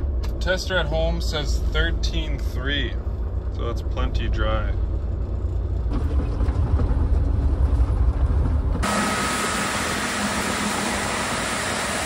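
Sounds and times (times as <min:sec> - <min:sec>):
combine harvester running: 0:00.0 - 0:12.0
truck engine rumble from cab: 0:00.0 - 0:12.0.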